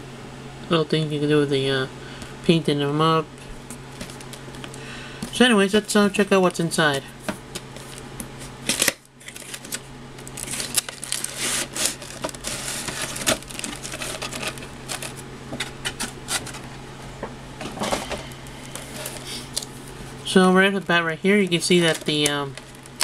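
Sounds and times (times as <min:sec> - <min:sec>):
cardboard and plastic rustling: 0:03.7 - 0:05.5, 0:07.2 - 0:16.8, 0:17.6 - 0:20.2, 0:21.3 - 0:23.0.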